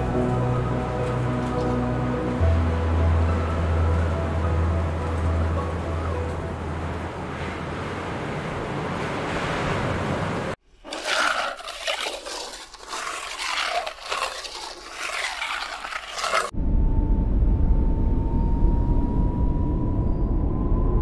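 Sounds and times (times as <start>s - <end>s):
ice scraper scraping windscreen: 10.8s - 16.5s.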